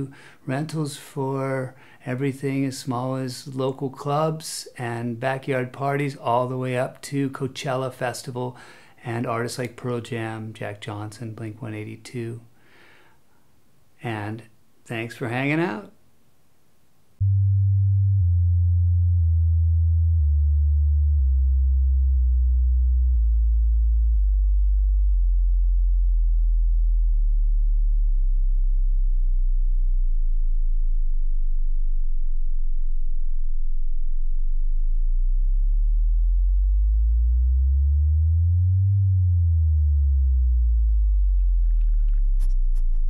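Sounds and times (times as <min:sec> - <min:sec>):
deep electronic tones sliding: 0:17.2 - 0:43.0.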